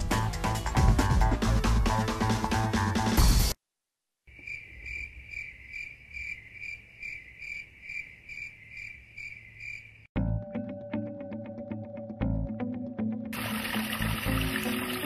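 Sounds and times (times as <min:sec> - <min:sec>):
background music: 0:00.0 - 0:03.6, 0:10.2 - 0:15.0
insect chirping: 0:04.3 - 0:10.1.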